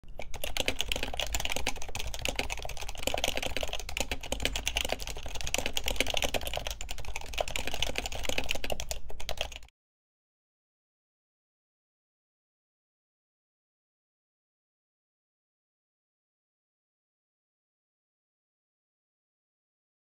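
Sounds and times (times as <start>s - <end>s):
computer keyboard typing: 0.1s - 9.7s.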